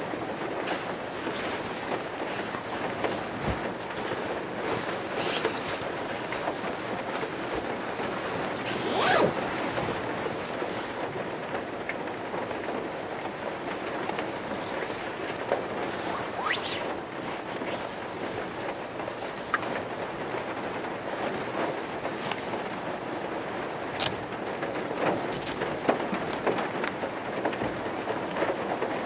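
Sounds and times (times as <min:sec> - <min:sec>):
bedding rustling: 0:00.1 - 0:11.1, 0:14.2 - 0:19.8
rain on a vehicle roof: 0:17.8 - 0:29.0.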